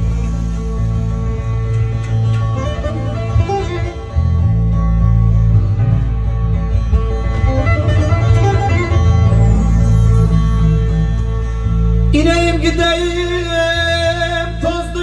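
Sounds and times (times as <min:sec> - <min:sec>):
deep bass note: 0:00.0 - 0:14.2.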